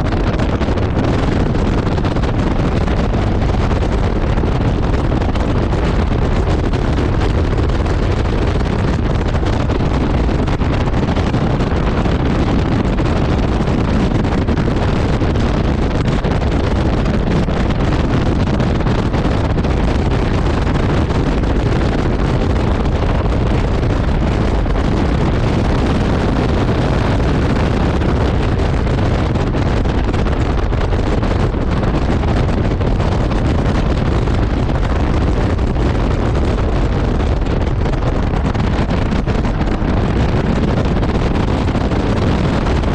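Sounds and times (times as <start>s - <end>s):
wind buffeting microphone: 0.0s - 42.9s.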